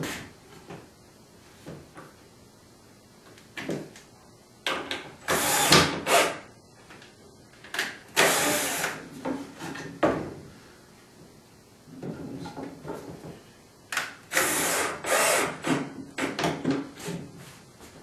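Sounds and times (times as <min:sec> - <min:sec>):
power drill driving screws into wood: 0:05.2 - 0:06.4, 0:08.2 - 0:09.0, 0:14.3 - 0:15.8.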